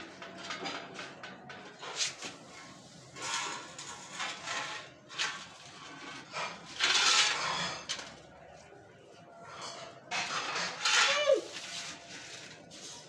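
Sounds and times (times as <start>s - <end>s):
broom sweeping brick paving: 1.7s - 9.1s, 10.1s - 13.0s.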